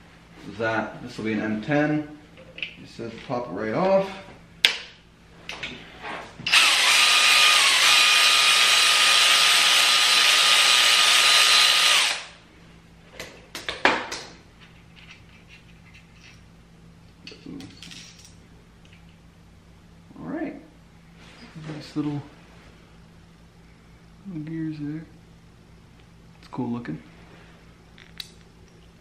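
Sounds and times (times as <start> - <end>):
electric ratchet whirring: 6.5 - 12.4.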